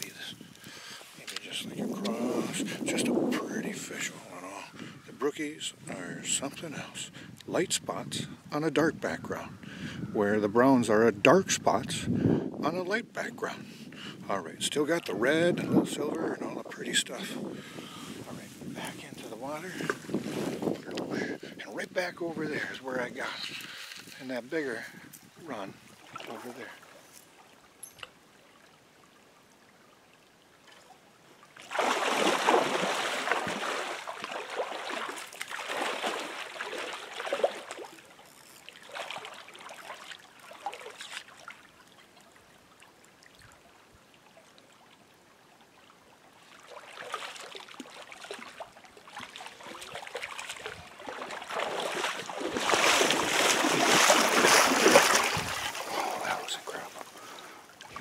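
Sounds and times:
water splashing around wading legs: 0:31.5 - 0:42.4, 0:46.4 - 0:58.0.

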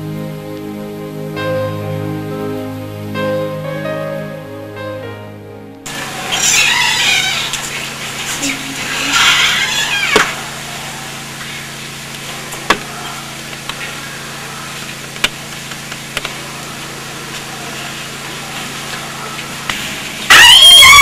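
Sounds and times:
low hum: 0:00.0 - 0:20.2
loud music with brass tone: 0:20.3 - 0:21.0.

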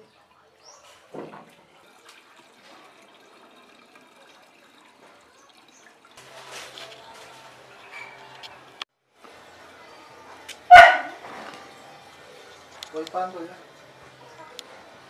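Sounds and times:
liquid pouring into plastic bottle: 0:01.0 - 0:07.4.

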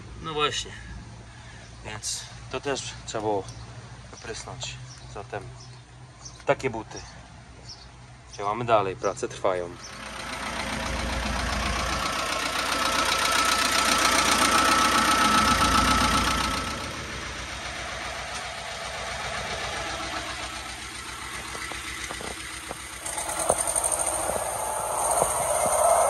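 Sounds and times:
engine running: 0:09.7 - 0:26.0
sharp clicks and knocks: 0:21.1 - 0:25.8.

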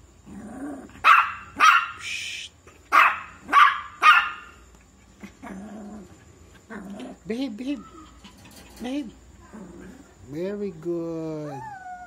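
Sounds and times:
puppy barking: 0:01.0 - 0:02.0, 0:02.9 - 0:04.6
puppy crying: 0:06.6 - 0:10.1, 0:11.4 - 0:12.0.

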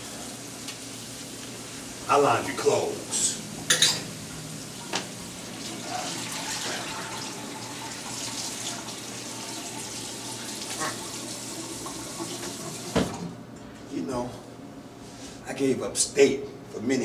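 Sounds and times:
tap water running into sink: 0:04.8 - 0:13.2.

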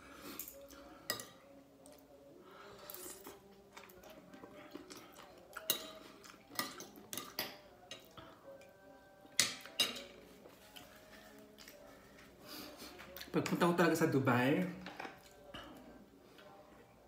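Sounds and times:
cutlery clinking on a plate: 0:05.5 - 0:08.2, 0:09.3 - 0:10.2.

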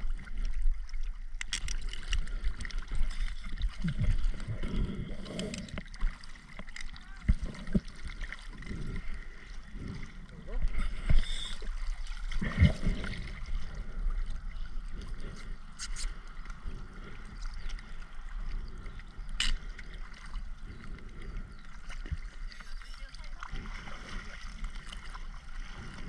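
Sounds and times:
water gurgling and sloshing: 0:00.0 - 0:26.0.

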